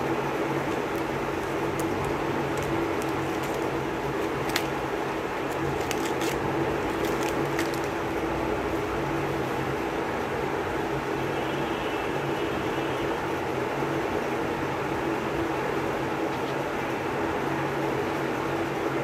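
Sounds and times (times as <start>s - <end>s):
steady hum: 0.0s - 11.1s
cellophane wrappers rustling: 0.3s - 8.4s.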